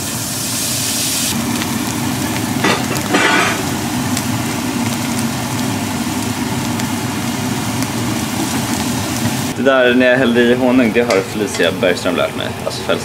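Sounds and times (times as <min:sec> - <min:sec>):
cheese sizzling in a frying pan: 0:00.4 - 0:09.6.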